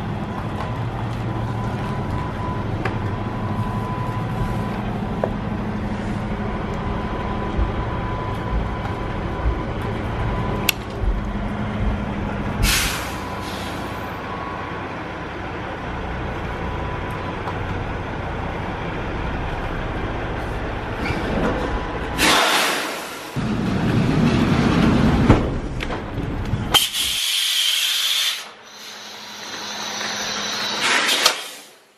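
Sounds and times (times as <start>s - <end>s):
diesel truck engine humming: 0.0s - 22.2s, 28.4s - 30.8s
air brake hisses: 12.6s - 14.0s, 26.8s - 31.8s.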